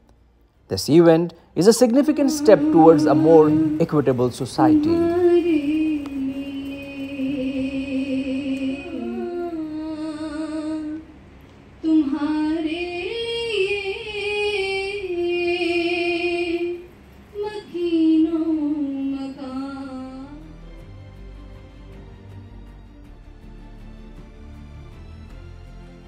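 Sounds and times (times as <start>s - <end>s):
woman singing with vibrato: 1.9s - 11.1s, 11.8s - 20.5s.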